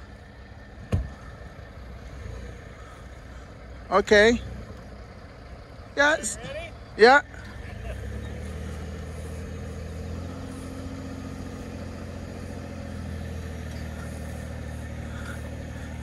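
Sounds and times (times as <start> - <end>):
truck engine straining under load: 0.0 - 16.0.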